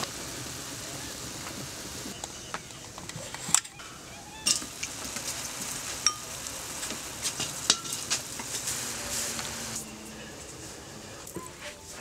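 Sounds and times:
steady high hiss: 0.0s - 12.0s
metal utensils clinking on a pot: 3.4s - 4.8s, 6.0s - 6.3s, 7.4s - 8.6s.

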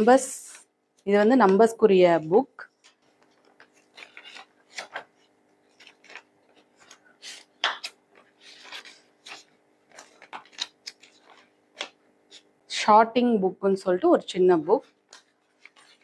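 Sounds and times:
paper pages flipping: 2.7s - 12.5s, 14.8s - 16.0s.

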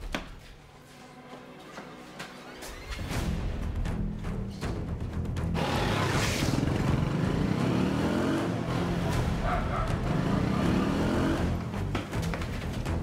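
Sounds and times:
motorbike engine revving: 5.6s - 11.8s.

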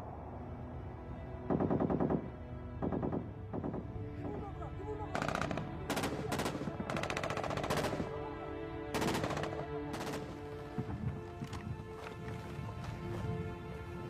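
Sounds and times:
orchestral film score: 0.0s - 14.0s
automatic gunfire: 5.2s - 8.1s, 9.0s - 10.4s.

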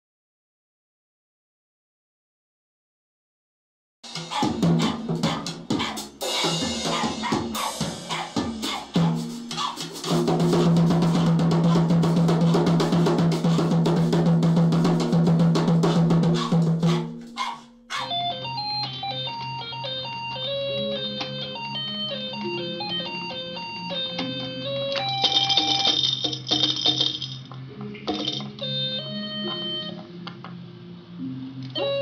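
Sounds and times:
drum kit playing: 4.0s - 18.2s.

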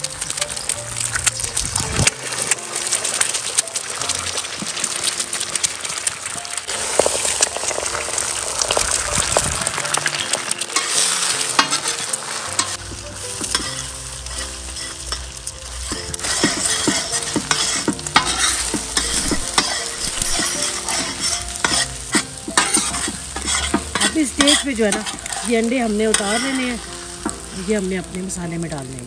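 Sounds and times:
eggs sizzling in hot oil: 0.0s - 29.0s
metal spatula scraping a pan: 6.7s - 28.1s.

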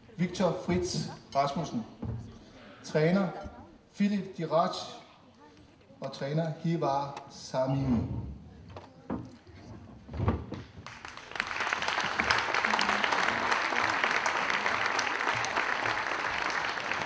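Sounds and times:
audience applauding: 10.8s - 17.0s.

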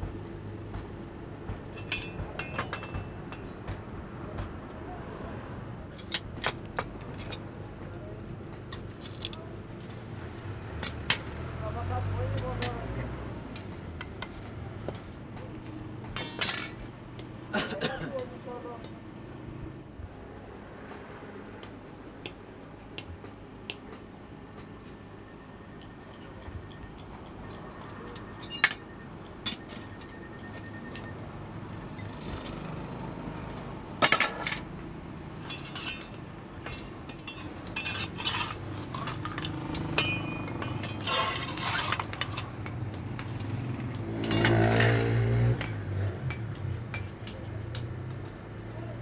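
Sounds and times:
metal tools clinking: 1.7s - 4.5s, 10.8s - 11.6s, 15.3s - 16.9s, 25.8s - 32.9s, 34.0s - 48.4s.

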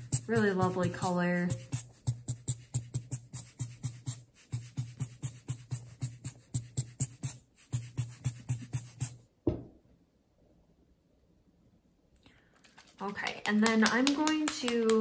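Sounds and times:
knock: 9.4s - 9.8s.

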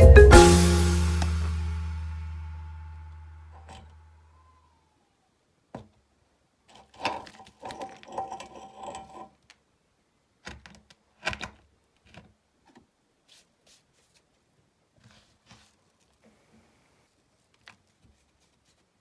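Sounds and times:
metal parts scraping and rattling: 6.7s - 9.4s.

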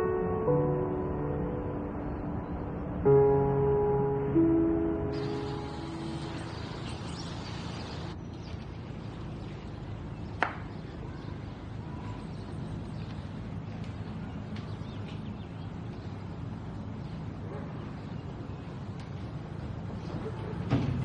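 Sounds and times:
background ambience: 0.0s - 21.0s.

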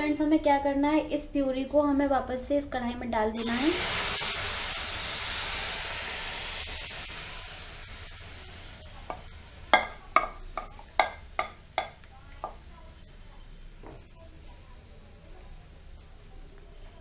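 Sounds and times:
tomato puree sizzling in a pan: 3.3s - 13.4s
bowl tapping against a pan: 9.1s - 12.6s.

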